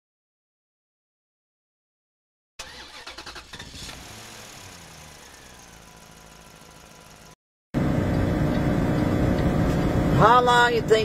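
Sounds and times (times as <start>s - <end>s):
vehicle engine running: 3.8s - 11.0s.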